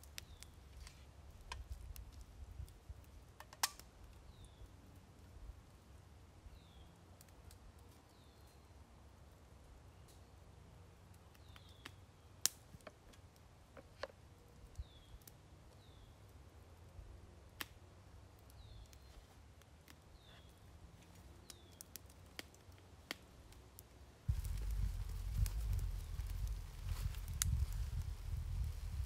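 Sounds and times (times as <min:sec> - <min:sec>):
sharp clicks and snaps: 0:03.4 - 0:03.9.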